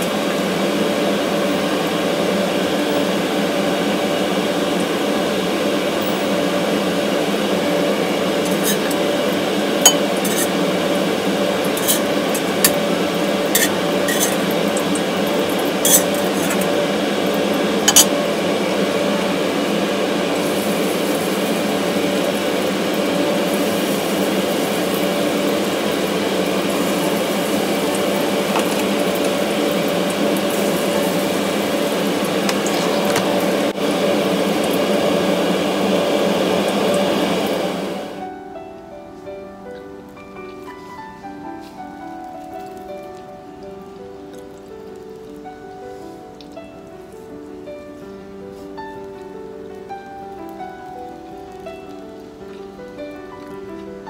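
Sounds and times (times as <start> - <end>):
metal tongs clinking on wok: 8.5 - 9.0, 9.9 - 10.6, 11.6 - 12.8, 13.5 - 15.1, 15.8 - 16.7, 17.9 - 18.1.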